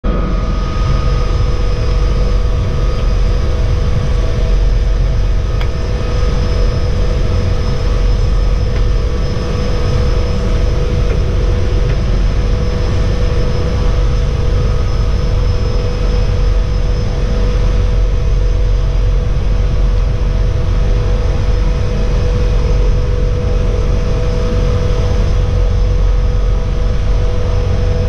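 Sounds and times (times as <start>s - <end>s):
propeller engine droning: 0.0s - 28.0s.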